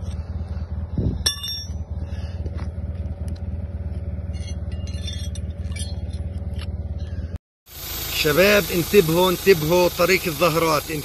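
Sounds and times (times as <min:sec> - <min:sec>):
vehicle engine idling: 0:00.0 - 0:11.0
light metallic clinks: 0:01.2 - 0:01.9, 0:04.2 - 0:07.2.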